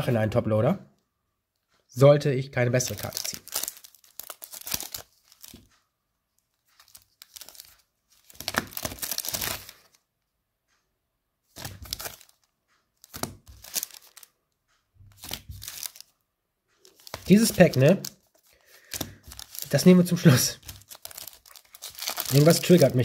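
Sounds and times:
foil packs crinkling: 0:02.8 - 0:05.7, 0:06.8 - 0:09.9, 0:11.6 - 0:14.3, 0:15.1 - 0:16.1, 0:16.8 - 0:23.0.

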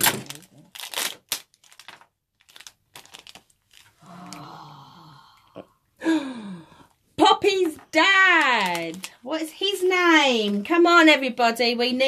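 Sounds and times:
foil packet crinkling: 0:00.0 - 0:04.0, 0:08.2 - 0:09.5.

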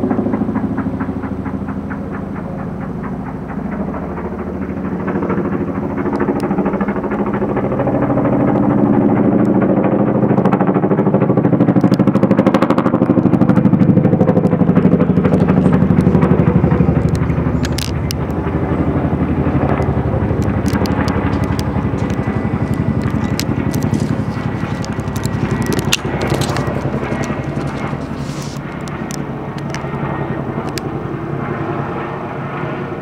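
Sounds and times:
helicopter rotor blades thudding: 0:00.0 - 0:33.0
slow chuffing: 0:13.5 - 0:30.0.

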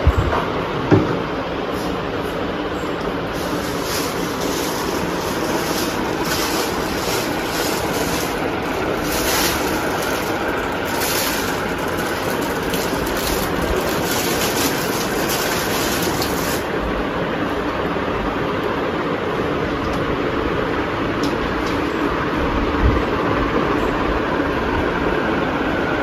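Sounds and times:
wind rushing on microphone: 0:00.0 - 0:00.4.

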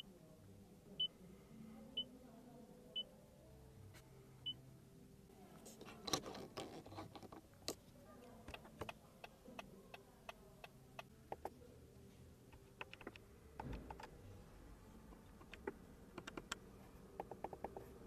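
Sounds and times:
dashboard controls clicking: 0:12.6 - 0:14.2, 0:15.1 - 0:16.6, 0:17.2 - 0:18.0.

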